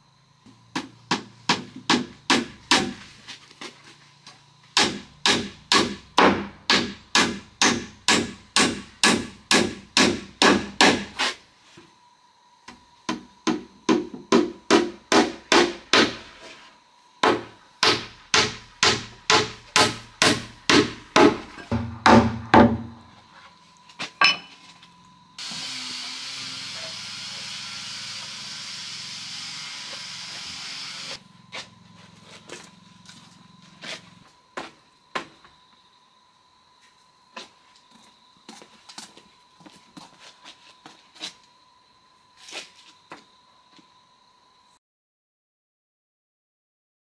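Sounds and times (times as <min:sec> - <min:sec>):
hammer striking wood: 0:00.8 - 0:03.0, 0:04.8 - 0:11.1, 0:13.1 - 0:16.2, 0:17.2 - 0:23.0.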